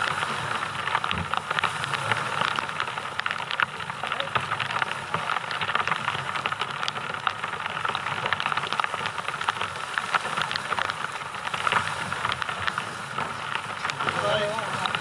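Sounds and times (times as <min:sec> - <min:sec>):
waves washing on shingle: 0:00.0 - 0:15.0.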